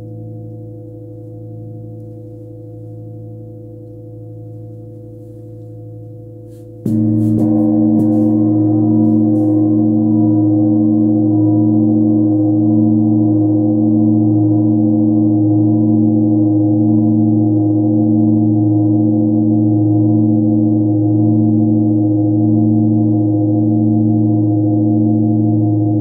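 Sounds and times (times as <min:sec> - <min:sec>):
hanging bell ringing deep hum: 0:00.0 - 0:26.0.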